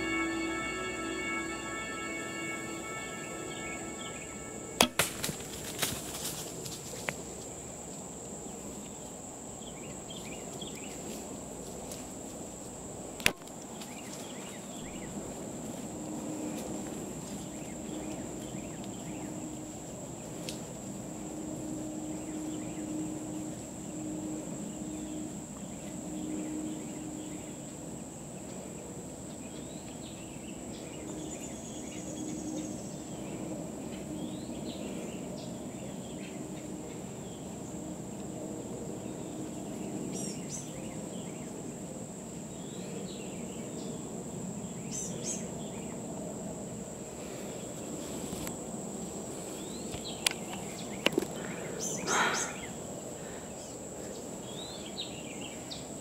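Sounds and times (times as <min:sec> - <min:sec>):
insect trill: 0:00.0 - 0:07.0, 0:48.6 - 0:56.0.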